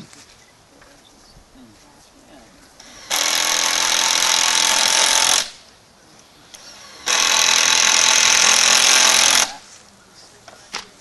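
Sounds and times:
power drill running: 2.8s - 5.6s, 6.6s - 9.6s.

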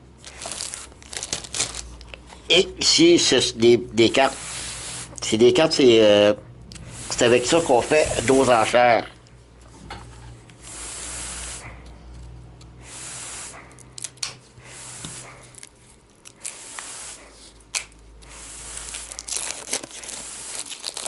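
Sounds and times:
knife slicing plastic wrap: 18.8s - 21.0s.

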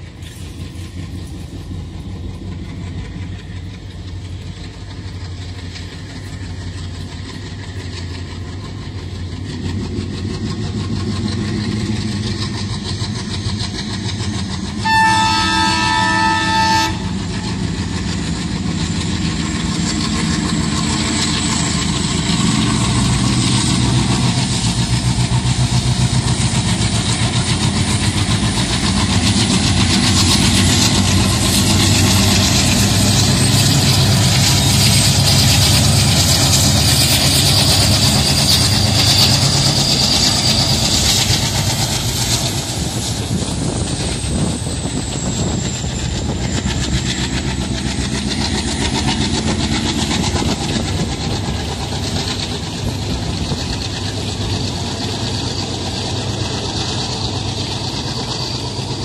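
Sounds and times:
diesel locomotive engine rumble: 0.0s - 59.0s
locomotive horn blast: 14.8s - 17.4s
wheels clattering over rail joints: 17.1s - 59.0s.

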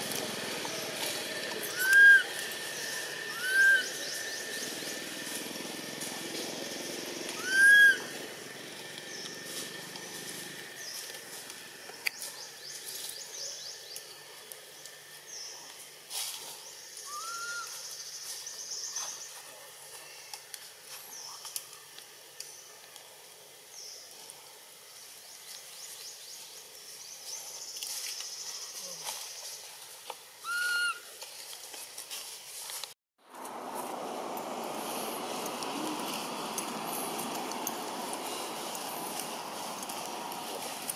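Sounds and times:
quiet outdoor ambience: 0.0s - 40.9s
infant monkey whimpering cries: 1.7s - 2.3s, 3.3s - 3.9s, 7.4s - 8.1s, 17.1s - 17.7s, 30.4s - 31.0s.

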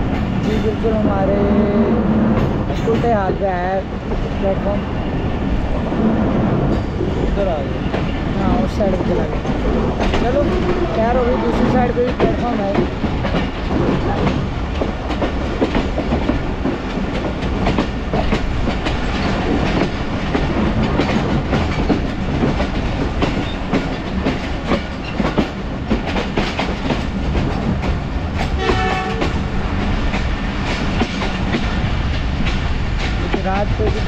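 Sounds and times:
train rumble: 0.0s - 34.0s
wind rushing: 0.0s - 34.0s
wheels clicking over rail joints: 6.7s - 34.0s
train horn: 28.6s - 29.4s.

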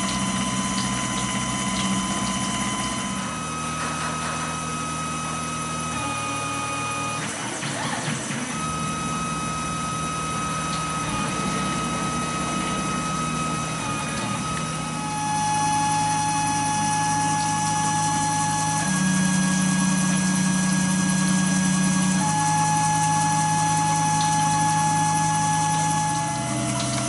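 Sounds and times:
milling machine motor hum: 0.0s - 27.0s
thin whining cutting tones: 8.5s - 27.0s
coolant spraying: 8.9s - 27.0s.

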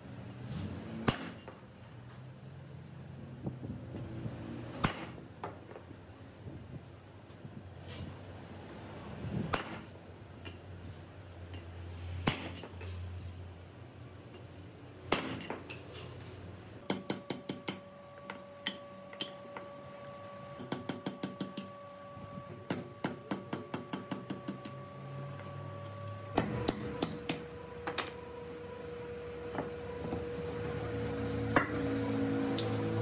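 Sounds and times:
hammer striking steel punch: 1.0s - 1.6s, 4.8s - 5.2s, 9.5s - 9.9s, 12.2s - 12.7s, 15.1s - 15.8s, 16.8s - 17.9s.

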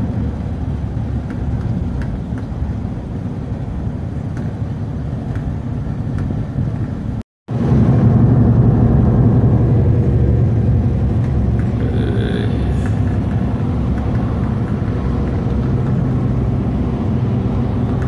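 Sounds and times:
engine and road rumble: 0.0s - 18.0s.

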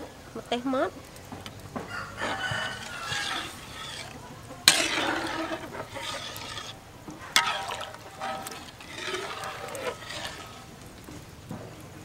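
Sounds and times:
chickens clucking: 1.9s - 5.2s
metal spatula stirring in wok: 2.2s - 11.0s
liquid sloshing: 2.3s - 11.0s.

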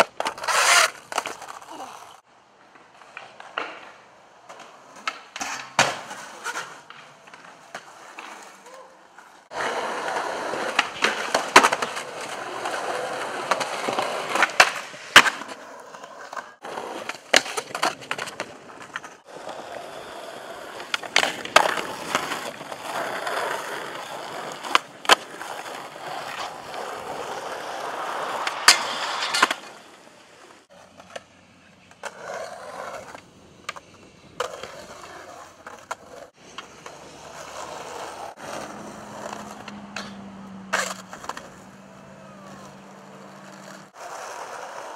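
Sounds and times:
skateboard wheels rolling on concrete: 0.0s - 44.9s
skateboard tail popping and landing: 2.5s - 8.8s, 9.6s - 19.8s, 20.4s - 31.3s.

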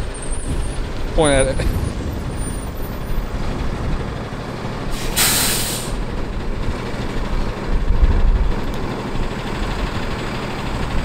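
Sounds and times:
truck engine low rumble: 0.0s - 11.0s
air brake hiss: 4.9s - 6.0s.

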